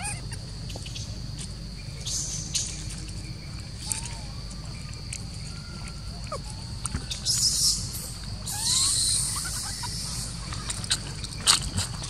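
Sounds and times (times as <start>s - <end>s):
insect drone: 0.0s - 12.0s
bird chirps: 3.8s - 11.5s.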